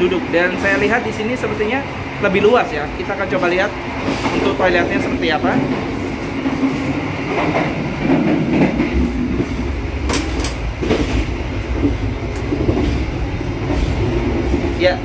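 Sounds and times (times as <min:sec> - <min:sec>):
train low rumble: 0:00.0 - 0:15.0
sharp clicks or knocks: 0:10.1 - 0:11.3.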